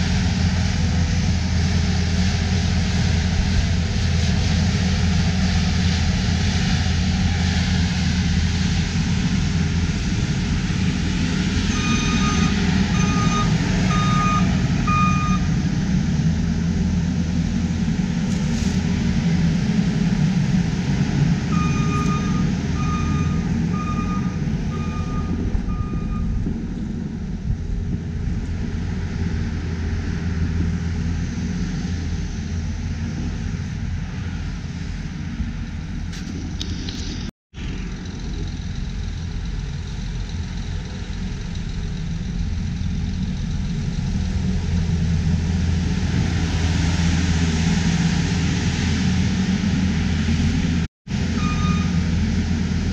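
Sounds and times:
diesel engine running: 0.0 - 52.9
backup alarm beeping: 11.7 - 15.5, 21.5 - 26.4, 51.3 - 52.0.

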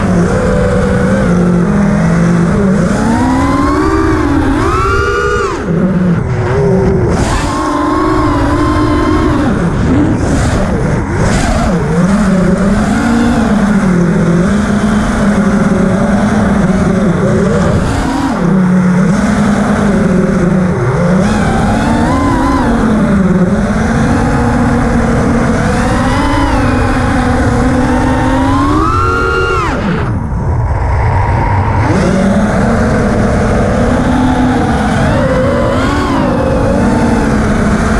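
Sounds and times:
quadcopter motors whining: 0.0 - 37.9.

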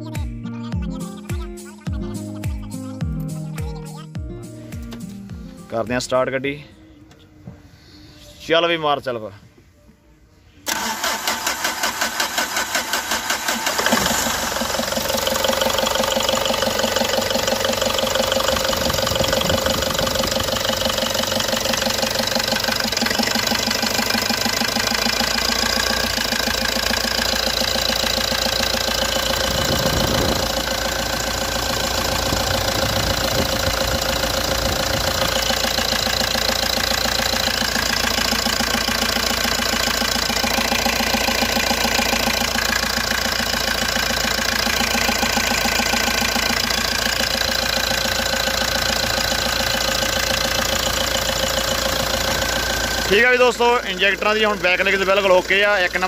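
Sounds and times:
diesel engine cranking: 10.6 - 56.0
diesel engine idling: 10.6 - 56.0.

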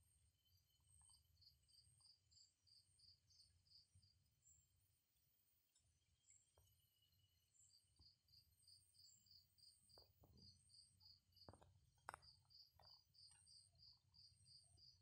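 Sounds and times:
insect chirping: 6.6 - 15.0.

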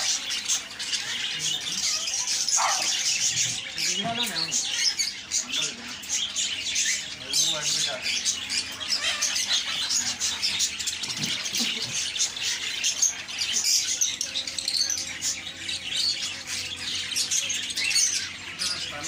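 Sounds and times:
cage birds chirping and squawking: 0.0 - 19.0.

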